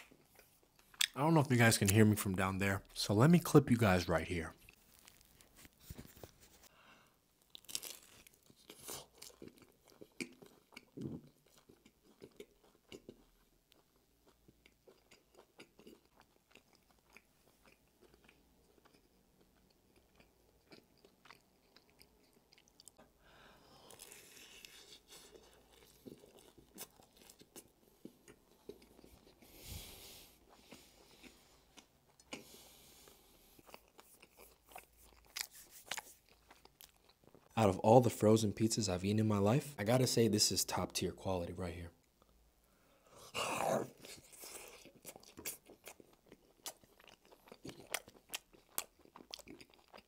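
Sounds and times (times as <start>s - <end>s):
crunchy bite into crust: 7.5s - 13.1s
chewing: 7.5s - 23.1s, 23.8s - 37.6s, 43.7s - 50.0s.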